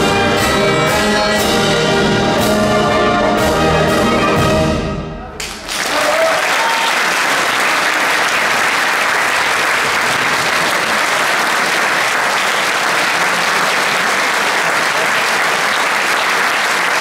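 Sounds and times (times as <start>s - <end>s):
large audience applauding: 5.4s - 17.0s.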